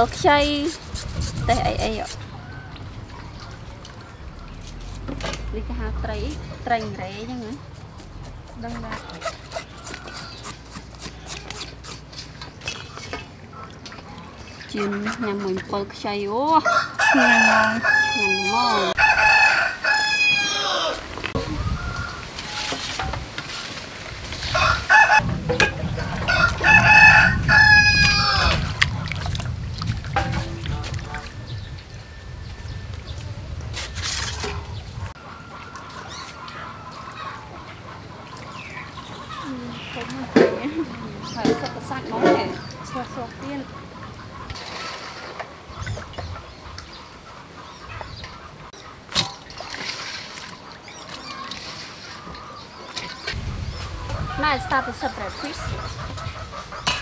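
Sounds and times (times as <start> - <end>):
birds and poultry calling: 1.2 - 5.1, 6.5 - 57.0
rooster crowing: 16.6 - 21.0, 24.5 - 25.3, 26.2 - 28.6.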